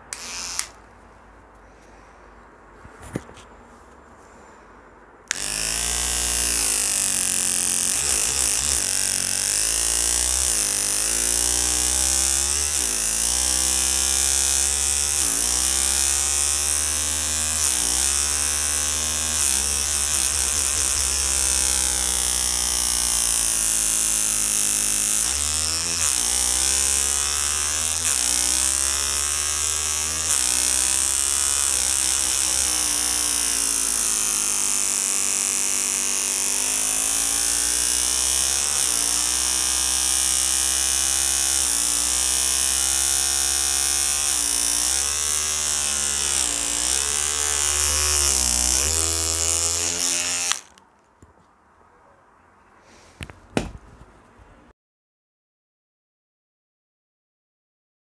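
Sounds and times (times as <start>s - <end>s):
electric toothbrush buzzing: 0.0s - 0.8s, 5.3s - 50.8s
man humming: 7.8s - 9.3s, 19.6s - 22.2s.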